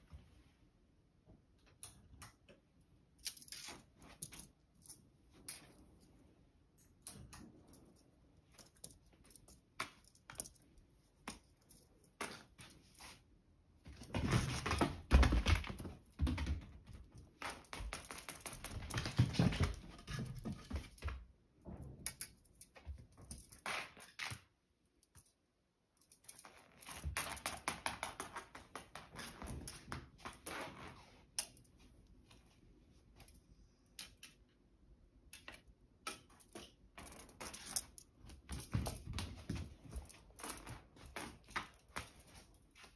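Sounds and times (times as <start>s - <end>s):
cat scuffling and tapping: 13.8s - 24.4s, 36.4s - 42.9s.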